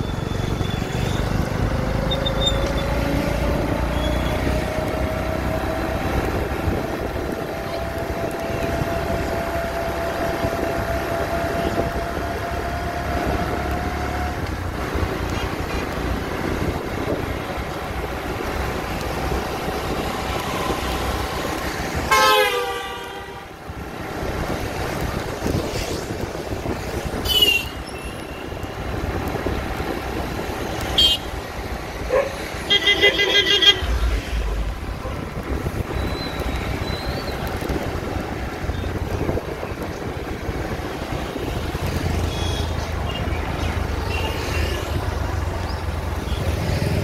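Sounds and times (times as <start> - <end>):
motorbike engine and road noise: 0.0 - 47.0
vehicle horns honking: 22.1 - 23.5, 31.0 - 31.3, 32.7 - 34.1.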